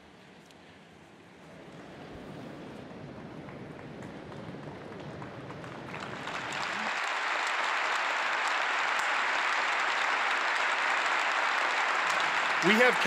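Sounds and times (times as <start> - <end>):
crowd applauding: 3.1 - 13.0.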